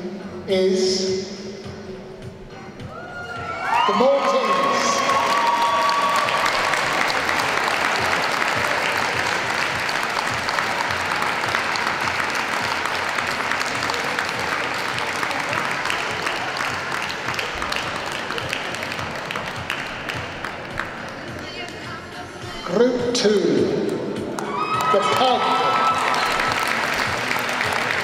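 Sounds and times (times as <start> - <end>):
audience applauding: 3.6 - 21.8, 24.3 - 28.0.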